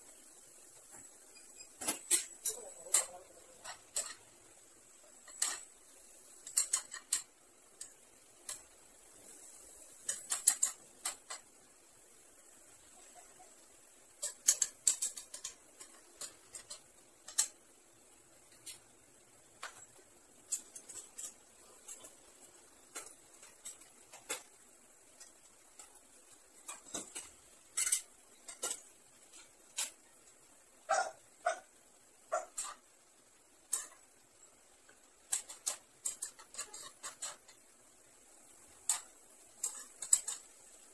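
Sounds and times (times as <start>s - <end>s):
faint steady hiss: 0.0s - 40.9s
spatula scraping frying pan: 35.2s - 37.7s.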